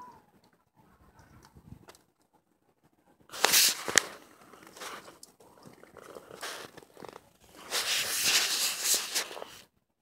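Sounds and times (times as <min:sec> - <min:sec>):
wet net scraping and rustling: 0:03.3 - 0:09.6.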